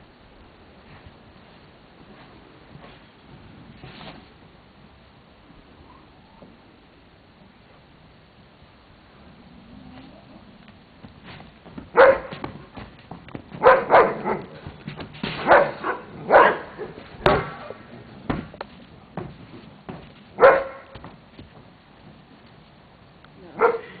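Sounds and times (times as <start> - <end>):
dog barking: 11.9 - 12.4, 13.6 - 14.6, 15.4 - 17.8, 20.4 - 21.0, 23.6 - 24.0.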